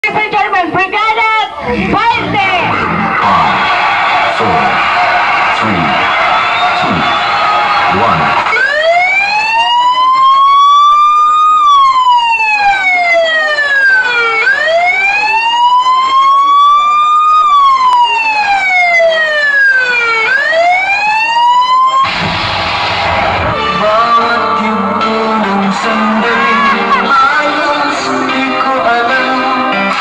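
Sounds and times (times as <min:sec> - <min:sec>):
wailing siren: 0:02.7 - 0:24.1.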